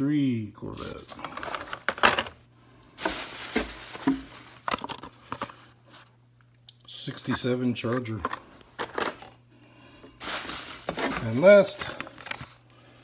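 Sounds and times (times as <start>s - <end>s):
cardboard and plastic packs rustling: 0.9s - 2.4s, 3.0s - 6.1s, 7.2s - 9.4s, 10.2s - 12.7s.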